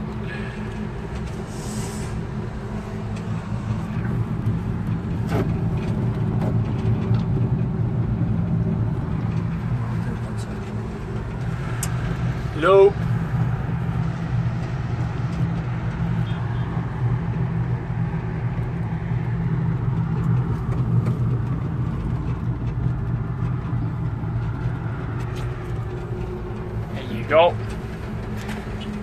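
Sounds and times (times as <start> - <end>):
cable car gondola hum and rushing: 0.0 - 29.0.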